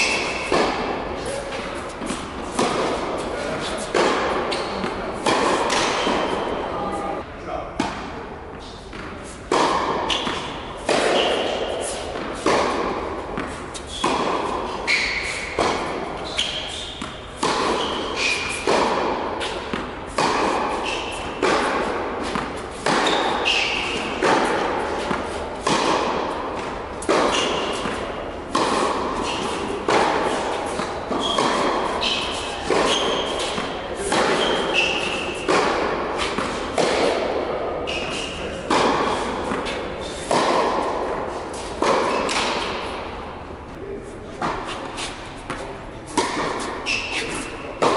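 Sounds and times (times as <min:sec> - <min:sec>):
tennis ball struck by rackets: 0:00.0 - 0:06.6, 0:08.9 - 0:43.3, 0:44.4 - 0:47.9
shoe squeaks on court: 0:04.5 - 0:04.9, 0:14.8 - 0:15.6, 0:16.2 - 0:17.0, 0:23.0 - 0:24.1, 0:31.2 - 0:35.5, 0:46.8 - 0:47.8.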